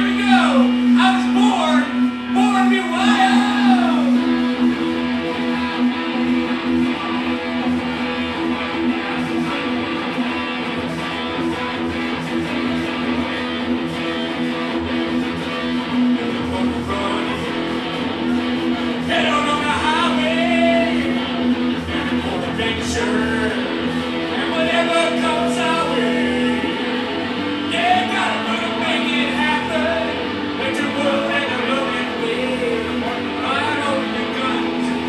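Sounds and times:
person singing: 0.0s - 4.7s, 19.0s - 35.0s
live band playing: 0.0s - 35.0s
strummed guitar: 0.0s - 35.0s.

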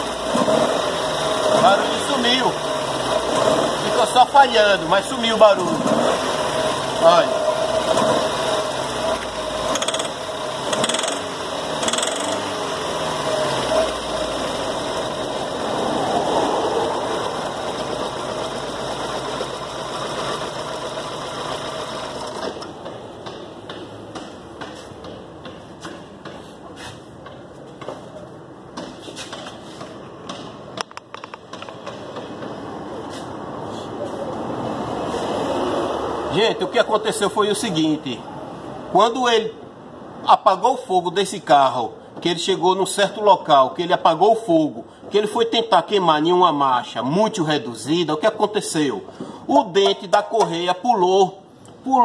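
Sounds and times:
engine running with rattling knock: 0.0s - 4.4s, 5.0s - 26.4s.

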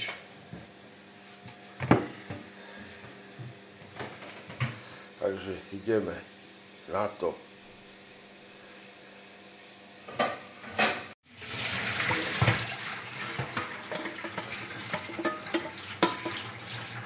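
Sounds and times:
water pouring into steel sink: 11.3s - 17.0s.

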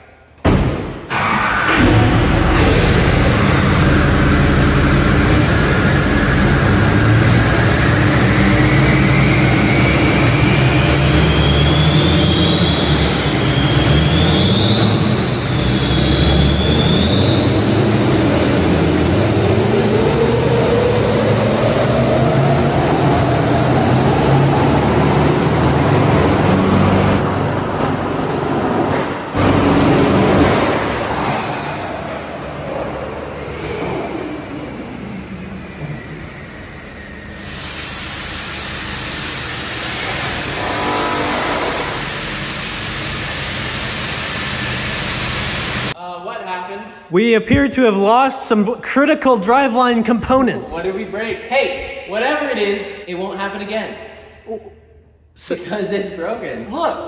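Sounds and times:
diesel engines running hard: 1.1s - 46.0s
driveline whine rising in pitch: 3.0s - 28.1s, 34.0s - 46.0s.

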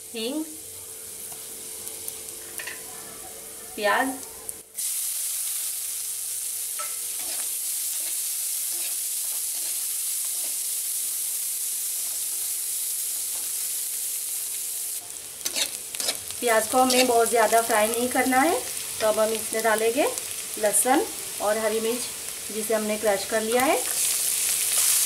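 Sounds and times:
onions sizzling in hot oil: 0.0s - 25.0s
spatula scraping a pan: 6.8s - 10.6s, 15.4s - 17.2s.

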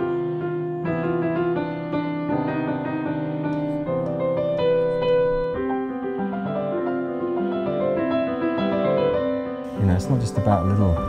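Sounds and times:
piano and string quartet: 9.7s - 11.0s.

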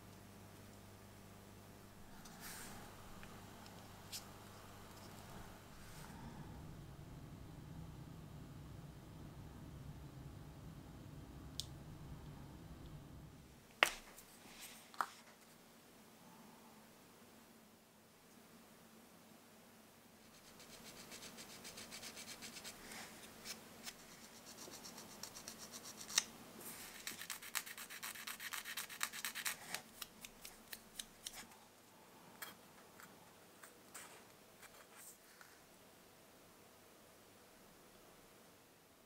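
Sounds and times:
sanding pad rasping on plastic: 26.8s - 30.0s.

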